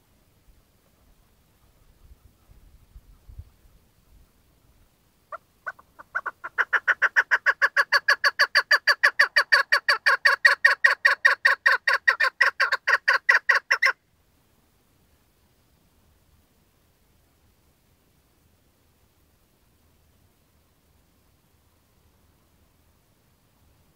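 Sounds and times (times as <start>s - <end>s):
partridge calling: 5.3s - 14.0s.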